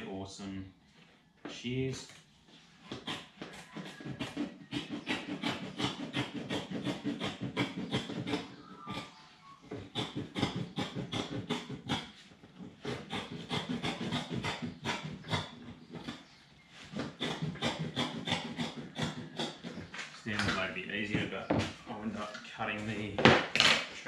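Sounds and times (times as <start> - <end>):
blade cutting carpet: 2.9 - 9.2, 9.8 - 20.6.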